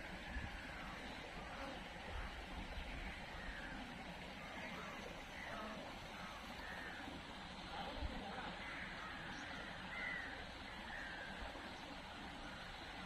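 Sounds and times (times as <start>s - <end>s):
steady outdoor hiss: 0.0s - 13.0s
birds chirping: 8.4s - 12.7s.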